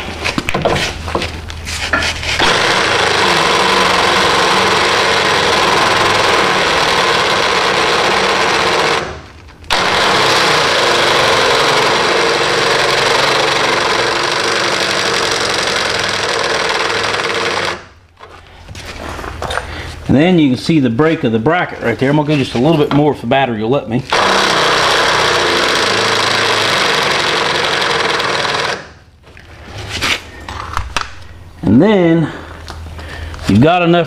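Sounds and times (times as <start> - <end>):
cordless drill drilling metal: 2.4 - 17.9, 24.1 - 28.9.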